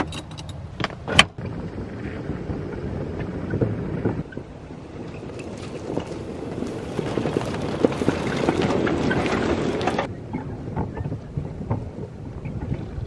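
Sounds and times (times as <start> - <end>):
golf cart driving: 0.0 - 13.0
cart body rattling and knocking: 3.5 - 10.1.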